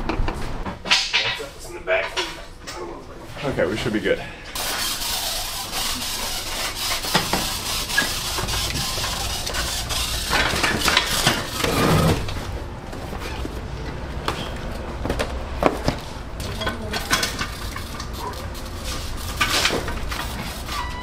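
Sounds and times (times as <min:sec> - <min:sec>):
cardboard packages knocking and rattling: 0:14.2 - 0:16.6.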